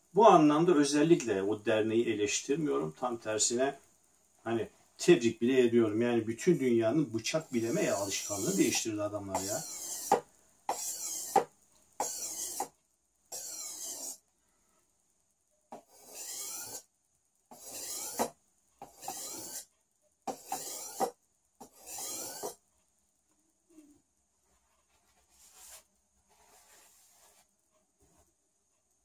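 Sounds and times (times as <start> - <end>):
blade scraping on sharpening stone: 7.4 - 8.8, 9.4 - 12.7, 13.3 - 14.2, 15.8 - 16.8, 17.5 - 19.7, 20.3 - 22.6.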